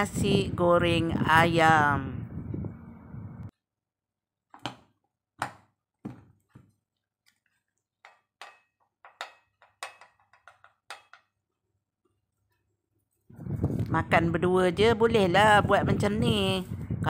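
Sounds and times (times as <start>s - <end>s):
plate and bowl clinking: 8.1s - 11.4s.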